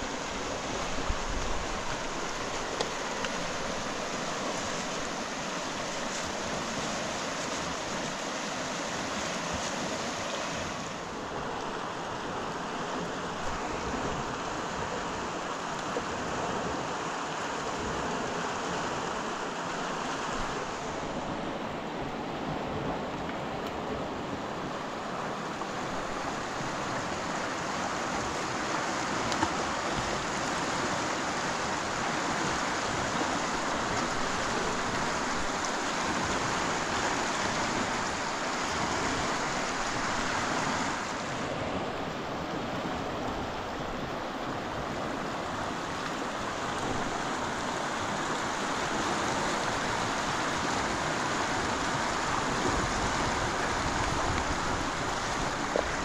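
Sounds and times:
rushing water: 0.0s - 56.0s.

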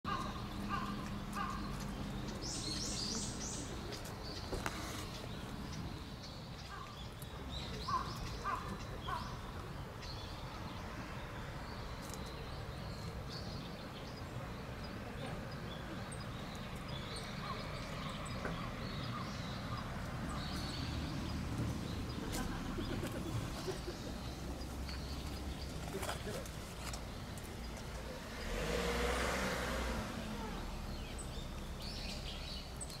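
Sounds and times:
birds calling: 0.1s - 33.0s.

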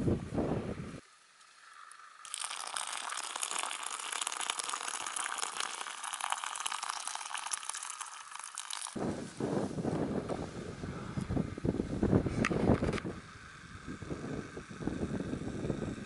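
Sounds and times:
water pouring into a pouch: 1.8s - 9.0s.

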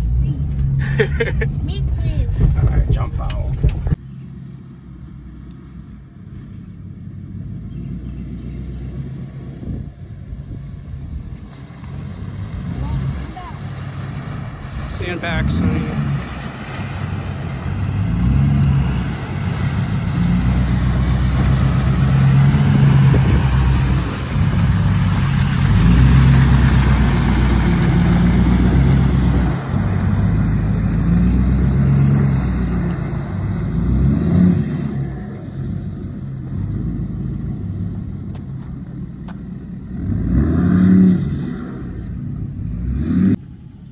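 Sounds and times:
diesel truck engine revving: 3.2s - 43.9s.

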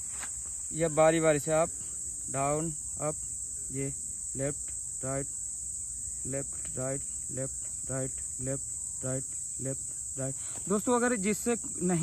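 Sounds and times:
insects droning: 0.0s - 12.0s
man repeating short syllables: 6.2s - 10.8s.

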